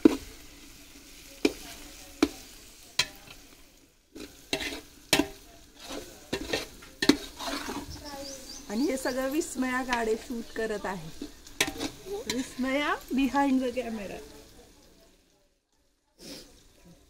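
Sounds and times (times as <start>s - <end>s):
frying sizzle: 0.0s - 17.0s
steel ladle scraping metal pot: 4.2s - 8.0s, 11.1s - 12.6s.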